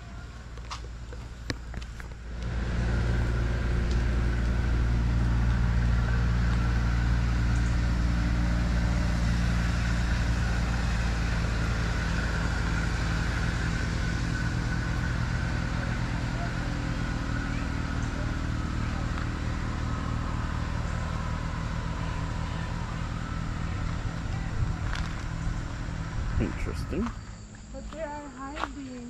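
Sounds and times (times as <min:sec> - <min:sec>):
vehicle engine droning: 0:00.0 - 0:29.0.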